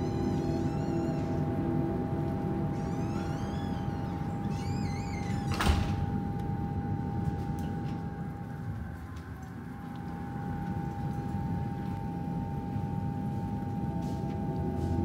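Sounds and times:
door shutting thud: 2.8 - 6.2.

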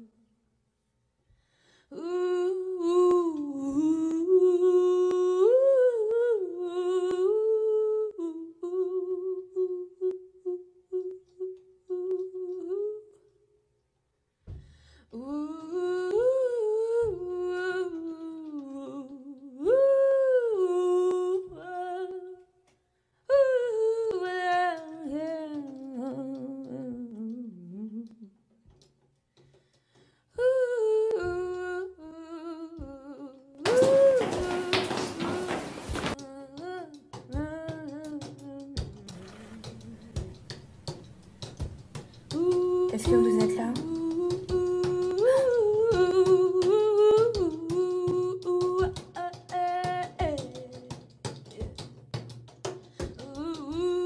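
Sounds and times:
person humming a slow melody: 1.9 - 13.3.

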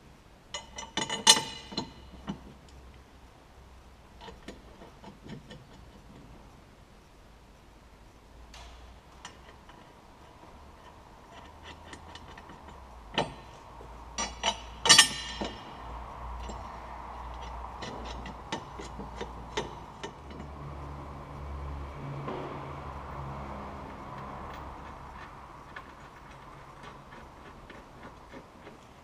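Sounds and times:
metal clicks and knocks: 0.5 - 2.8, 4.2 - 6.4, 8.5 - 29.0
ringing metal clinks: 14.2 - 20.5.

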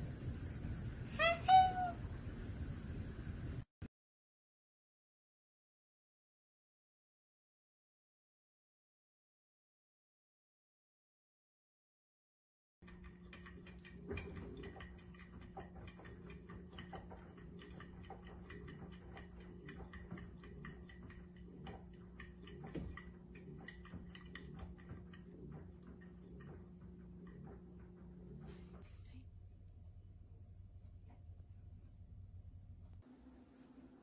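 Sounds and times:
light clicks and taps: 12.8 - 28.8
washing machine humming: 12.8 - 34.0.

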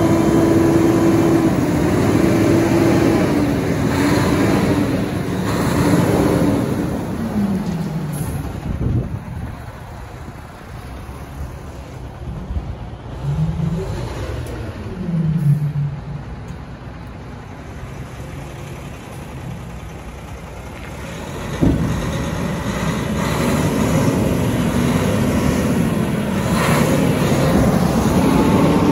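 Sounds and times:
diesel truck engine running: 0.0 - 28.9.

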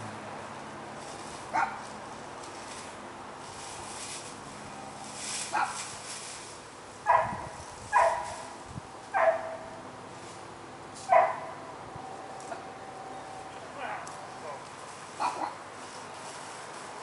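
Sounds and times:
dog barking: 1.5 - 1.8, 5.5 - 5.8, 7.1 - 8.4, 9.1 - 9.6, 11.1 - 11.6, 15.2 - 15.6.

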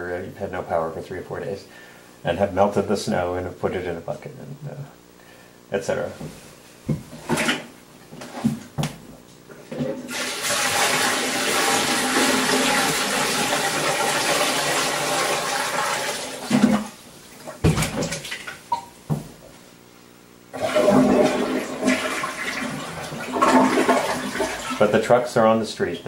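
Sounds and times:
water poured into toilet tank: 10.1 - 18.6, 20.5 - 25.0.

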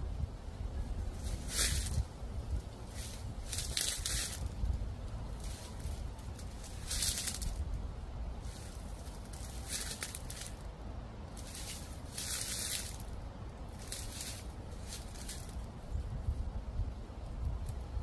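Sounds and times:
wind rumble on microphone: 0.0 - 18.0
footsteps crunching dry leaves: 1.1 - 10.7, 11.3 - 15.7.

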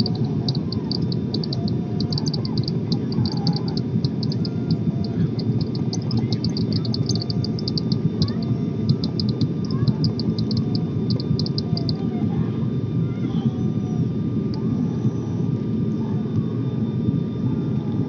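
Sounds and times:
fast irregular high ticking: 0.0 - 11.9
airliner cabin engine drone: 0.0 - 18.0.

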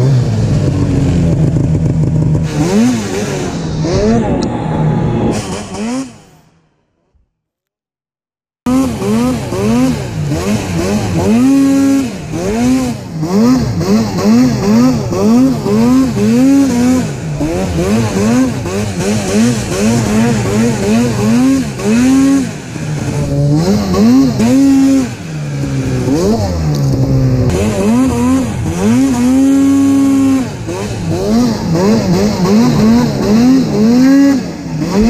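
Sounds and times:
snowmobile engine revving: 0.0 - 6.5, 8.7 - 35.0.

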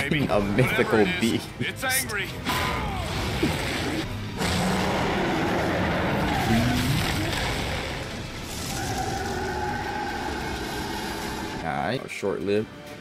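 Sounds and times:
monster roaring and growling: 2.5 - 11.6.

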